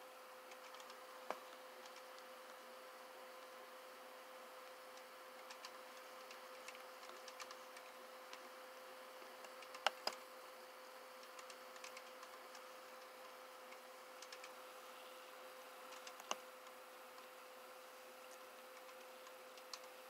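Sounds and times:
steady hum: 0.0 - 20.0
mouse clicking: 0.5 - 2.3, 4.6 - 8.5, 9.4 - 10.2, 11.2 - 14.6, 15.9 - 17.3, 18.2 - 20.0.

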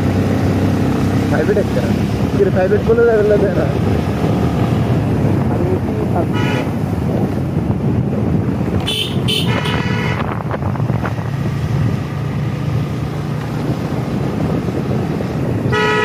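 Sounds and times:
vehicle horn toots: 6.3 - 6.8, 8.8 - 10.3, 15.6 - 16.0.

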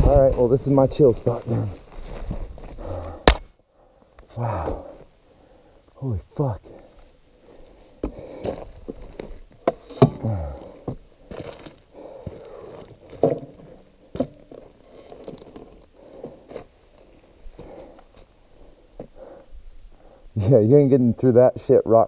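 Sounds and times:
boots crunching on gravel: 10.2 - 13.5, 14.2 - 16.7.

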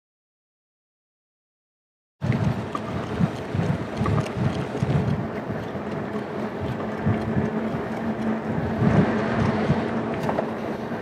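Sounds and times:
wind buffeting microphone: 2.2 - 11.0.

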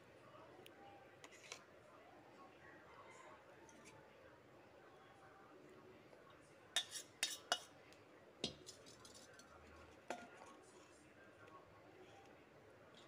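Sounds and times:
spoon clinking on metal dish: 6.8 - 7.7, 8.4 - 10.6.

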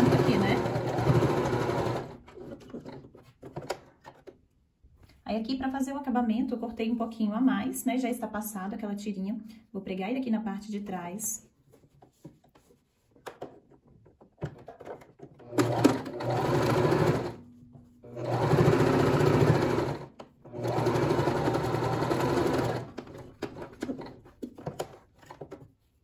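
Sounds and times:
sewing machine stitching: 0.0 - 3.1, 15.4 - 17.4, 18.1 - 24.2.

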